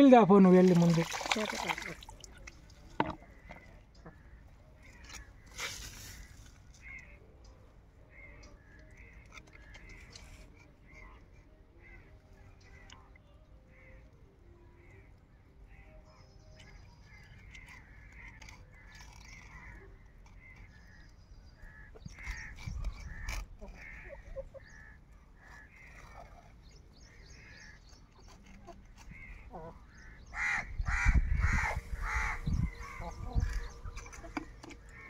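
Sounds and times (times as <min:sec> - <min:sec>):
crows cawing: 0:29.0 - 0:33.8.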